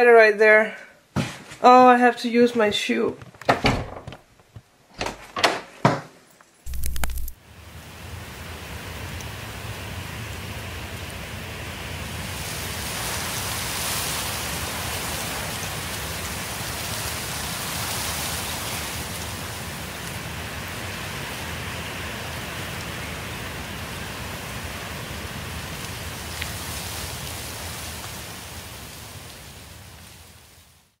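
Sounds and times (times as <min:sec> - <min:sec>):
steady rain: 0:06.4 - 0:31.0.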